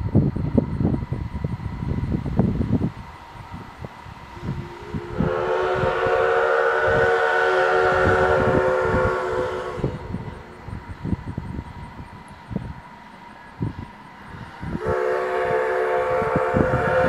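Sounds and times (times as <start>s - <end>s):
steam whistle blast: 4.4s - 10.4s, 14.7s - 17.0s.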